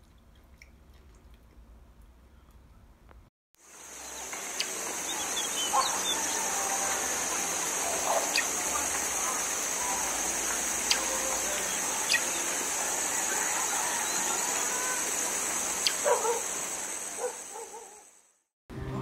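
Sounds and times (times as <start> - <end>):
steady high hiss: 3.6 - 18.4.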